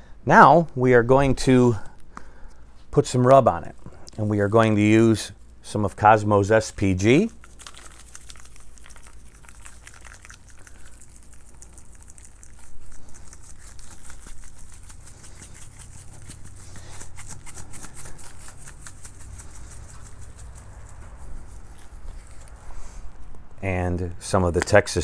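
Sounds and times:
shaker bottle rattling granules: 6.6s - 22.5s.

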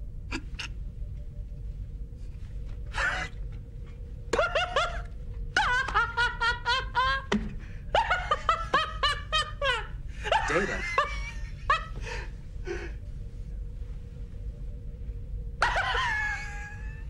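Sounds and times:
faint steady hum: 0.0s - 17.0s
man laughing loudly: 4.3s - 12.0s, 15.6s - 17.0s.

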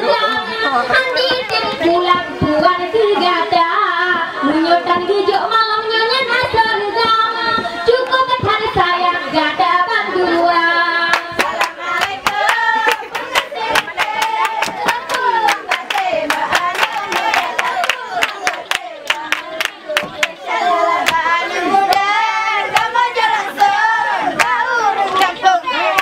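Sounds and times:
rhythmic hand clapping: 11.0s - 26.0s.

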